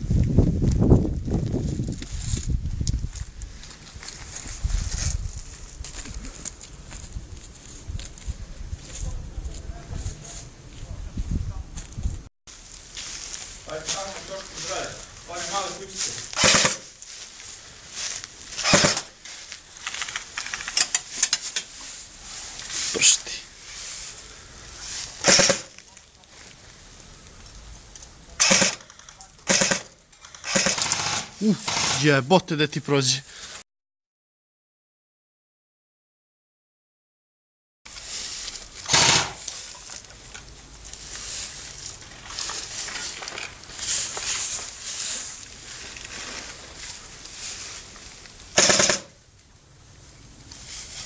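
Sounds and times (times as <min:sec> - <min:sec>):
footsteps in straw: 0:00.0 - 0:27.2, 0:37.9 - 0:38.8, 0:39.4 - 0:48.5, 0:50.5 - 0:51.0
straw rustling: 0:12.5 - 0:28.3, 0:37.9 - 0:48.6, 0:50.1 - 0:51.0
airsoft rifle bursts: 0:16.4 - 0:16.9, 0:18.6 - 0:19.1, 0:25.2 - 0:25.8, 0:28.4 - 0:32.1, 0:38.8 - 0:39.6, 0:48.6 - 0:49.2.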